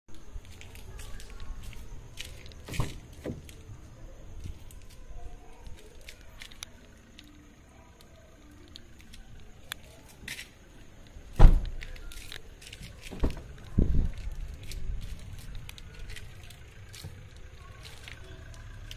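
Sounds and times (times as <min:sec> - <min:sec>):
car door shutting: 0:02.6 - 0:03.5, 0:11.3 - 0:11.8
thuds: 0:11.3 - 0:11.9.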